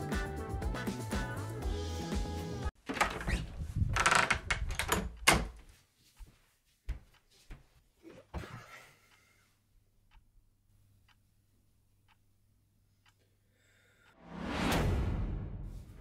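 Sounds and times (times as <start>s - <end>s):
door opening and shutting: 2.8s - 5.6s
door rattles and knocks: 2.8s - 5.6s
door knob turning: 4.0s - 5.6s.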